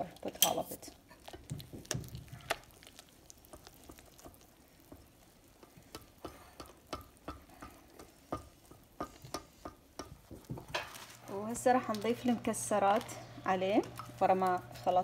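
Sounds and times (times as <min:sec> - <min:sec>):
whisk stirring batter in bowl: 0:00.6 - 0:11.2
utensils tapping bowl: 0:05.6 - 0:11.0.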